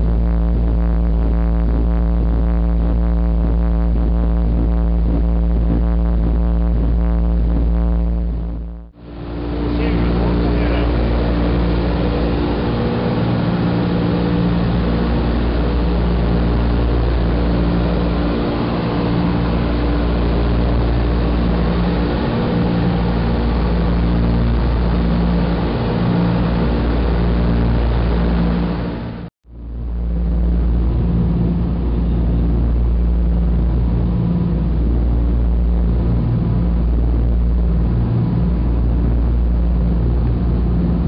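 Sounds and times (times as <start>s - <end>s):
aircraft piston engines droning: 9.0s - 29.2s.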